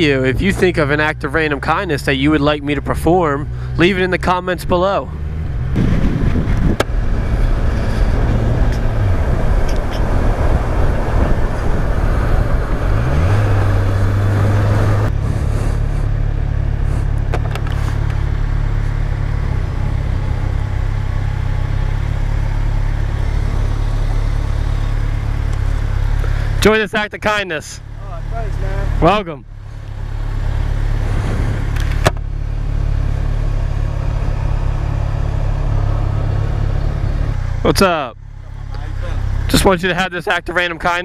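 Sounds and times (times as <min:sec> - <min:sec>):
motorcycle engine: 0:00.0 - 0:41.0
wind rush: 0:05.4 - 0:16.0, 0:30.9 - 0:32.0.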